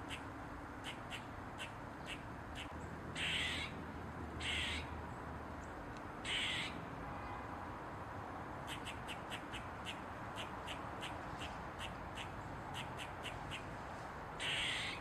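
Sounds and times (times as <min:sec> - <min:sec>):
squirrel raspy barks: 0:00.0 - 0:03.7, 0:04.4 - 0:04.9, 0:06.2 - 0:06.8, 0:08.6 - 0:13.7, 0:14.4 - 0:15.0.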